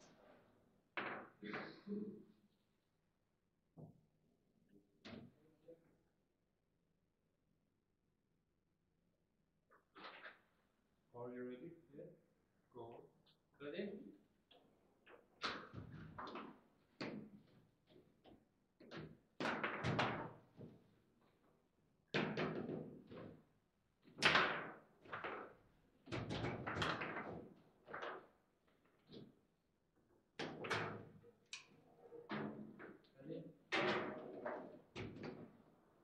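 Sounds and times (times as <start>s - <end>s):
foosball knocks and thuds: 1.0s - 1.6s, 33.7s - 35.5s.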